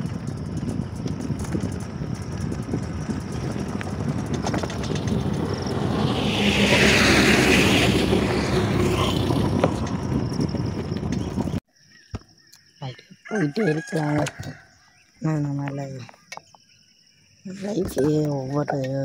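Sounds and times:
bicycle road noise: 0.0 - 11.6
wind buffeting microphone: 0.0 - 11.6.

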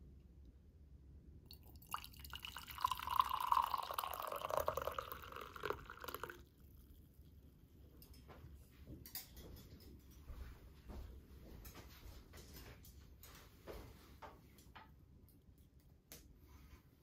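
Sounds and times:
coffee pouring into a mug: 1.5 - 7.4.

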